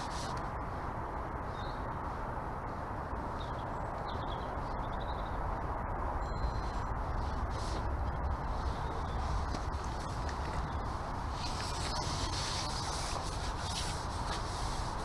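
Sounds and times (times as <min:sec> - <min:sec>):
outdoor rushing noise: 0:00.0 - 0:15.0
faint high bird chirps: 0:06.2 - 0:06.9, 0:11.4 - 0:13.9.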